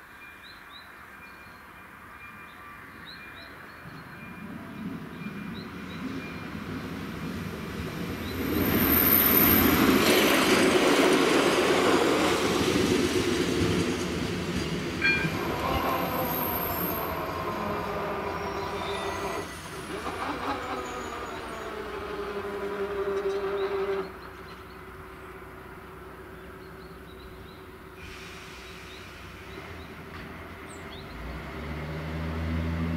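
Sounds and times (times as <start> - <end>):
passenger train passing: 0.1 - 32.9
train wheel noise: 6.1 - 24.8.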